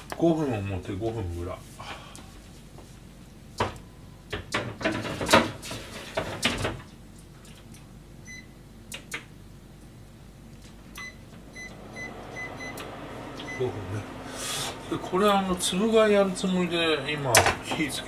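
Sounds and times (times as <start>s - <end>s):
clatter and knocks in grill: 4.4s - 6.9s.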